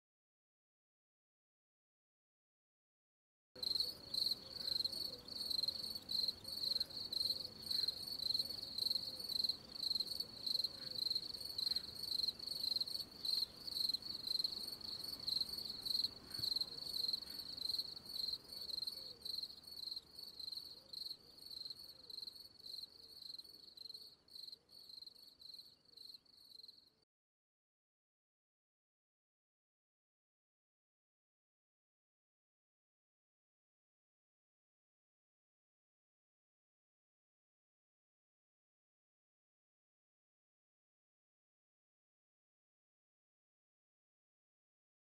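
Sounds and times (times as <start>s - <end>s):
cricket chirping: 3.6s - 27.0s.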